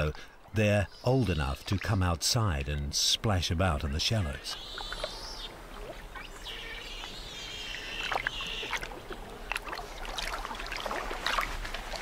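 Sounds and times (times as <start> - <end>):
otter pups splashing: 4.6 - 12.0
high drawn-out whining call: 6.2 - 8.8.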